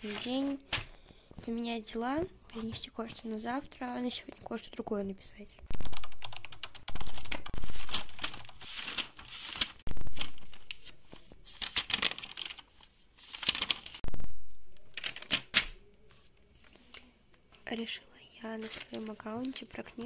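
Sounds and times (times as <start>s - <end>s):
notebook pages rustling: 0.0s - 4.5s, 7.0s - 14.1s, 14.9s - 17.7s, 18.5s - 20.0s.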